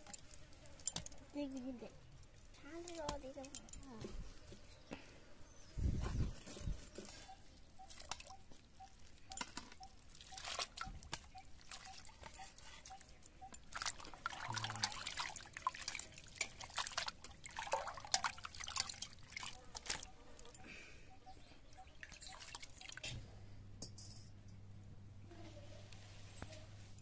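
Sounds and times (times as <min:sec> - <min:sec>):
water dripping onto plate: 0:07.6 - 0:20.6
water splashing in steel bowl: 0:07.9 - 0:12.4, 0:13.0 - 0:20.5, 0:22.0 - 0:23.0.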